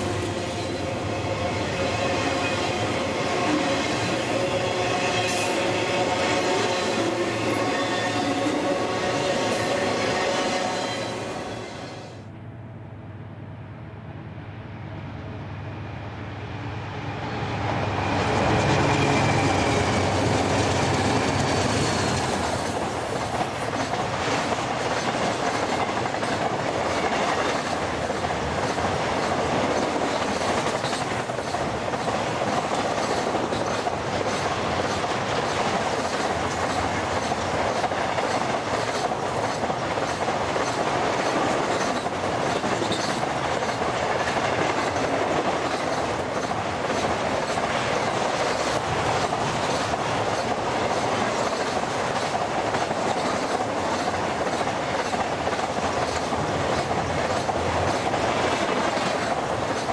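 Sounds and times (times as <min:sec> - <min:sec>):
diesel locomotive engine hum: 0:00.0 - 0:59.9
train rumble: 0:00.0 - 0:59.9
wheels clacking over rail joints: 0:18.9 - 0:59.9.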